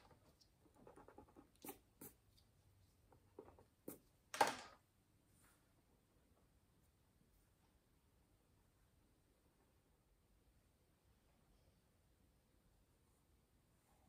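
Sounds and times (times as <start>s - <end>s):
pencils scratching on paper: 0.0s - 4.1s.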